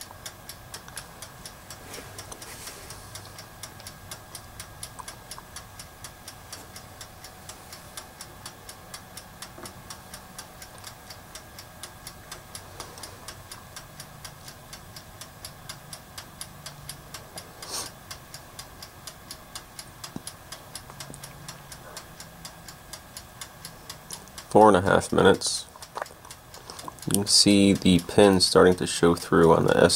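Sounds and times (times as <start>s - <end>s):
mechanical timer ticking: 0.0s - 29.9s
timer click: 27.0s - 29.9s.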